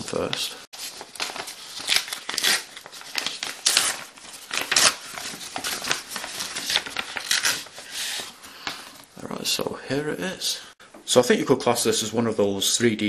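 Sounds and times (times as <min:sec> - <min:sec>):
paper crinkling: 0:00.0 - 0:09.1
paper envelope tearing: 0:00.8 - 0:08.3.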